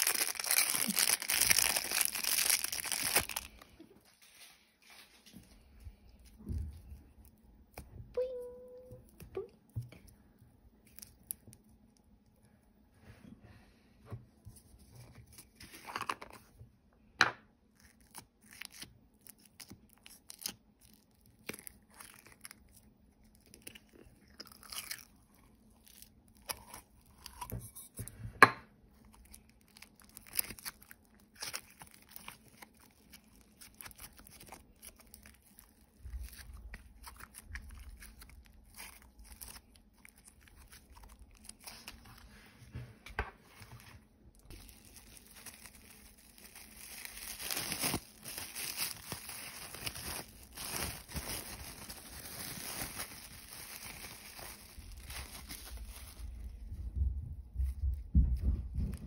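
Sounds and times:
plastic packaging crinkling: 0.0 - 5.3, 29.0 - 42.2, 44.3 - 56.6.

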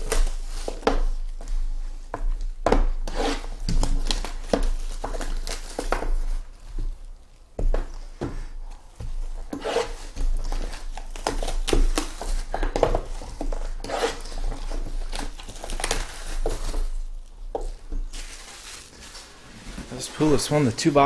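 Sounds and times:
plastic shrink wrap crinkling: 3.6 - 7.5, 9.4 - 21.0.

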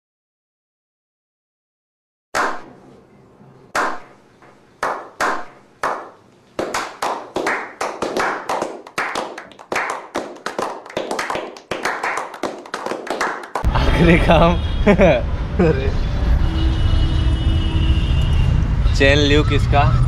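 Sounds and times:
small group clapping: 4.8 - 13.7.

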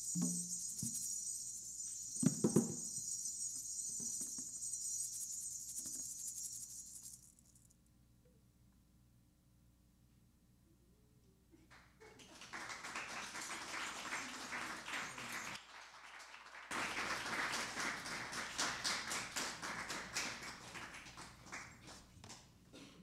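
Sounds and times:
audience applauding: 12.1 - 22.2.

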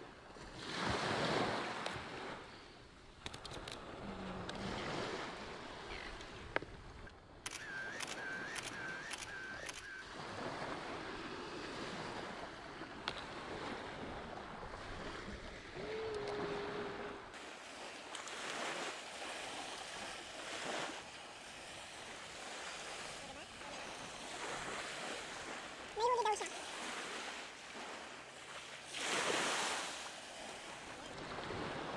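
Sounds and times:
sharp clicks with chirps: 6.2 - 10.0
surf washing on sandy beach: 7.6 - 31.9.

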